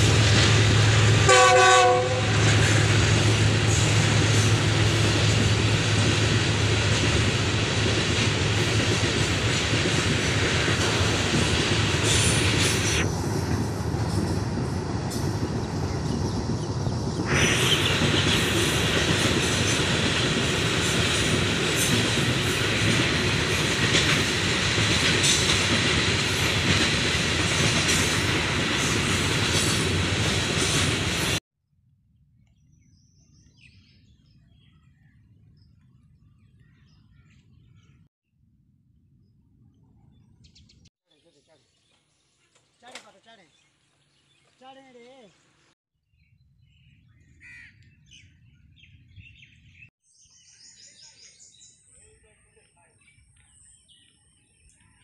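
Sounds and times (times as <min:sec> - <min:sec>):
train wheels rumbling on rails: 0:00.0 - 0:31.4.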